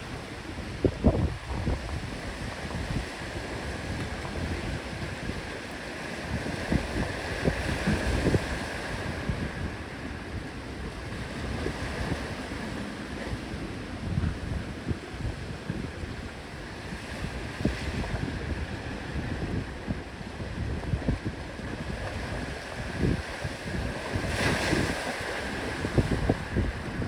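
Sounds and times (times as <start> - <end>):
ocean surf on rocky shore: 0.0 - 27.0
wind gusting on microphone: 0.0 - 27.0.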